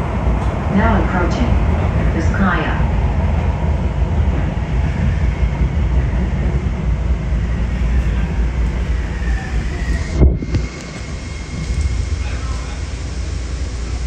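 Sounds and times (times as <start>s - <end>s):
train rumbling with whine: 0.0s - 14.0s.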